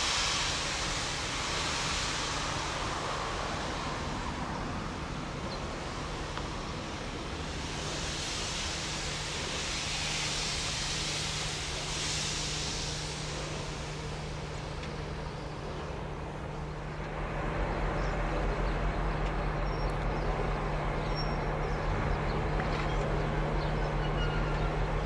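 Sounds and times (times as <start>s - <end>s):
diesel locomotives idling: 0.0s - 25.0s
steady engine hum: 0.0s - 25.0s
steam hissing: 0.0s - 25.0s.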